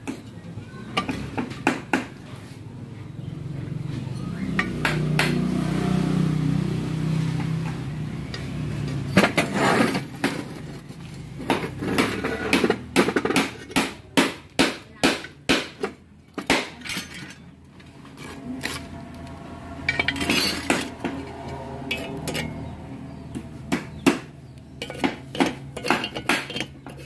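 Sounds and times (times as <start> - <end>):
metal scraping: 8.8 - 13.8, 16.8 - 23.1, 24.8 - 27.0
metal tool tapping engine case: 24.8 - 27.0.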